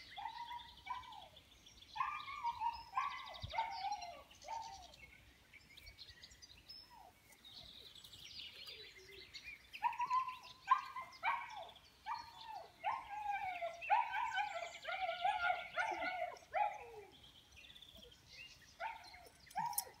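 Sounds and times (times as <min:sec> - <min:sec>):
puppies whining and yipping: 0:06.8 - 0:07.8, 0:18.8 - 0:20.0.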